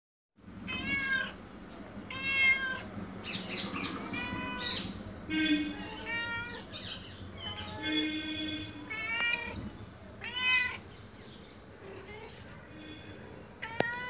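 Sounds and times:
cat meowing: 0.6s - 1.4s, 2.0s - 2.9s, 3.8s - 5.0s, 5.7s - 6.8s, 7.4s - 8.0s, 8.8s - 10.9s, 13.6s - 14.0s.

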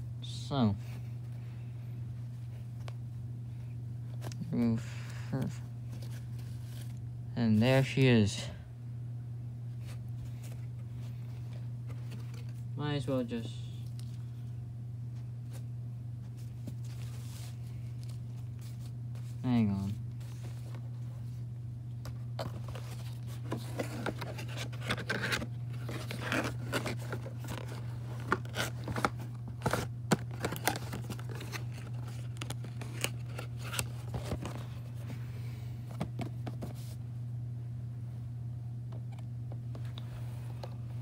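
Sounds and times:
steady low hum: 0.0s - 41.0s
cardboard scraping and rustling: 22.3s - 35.0s.

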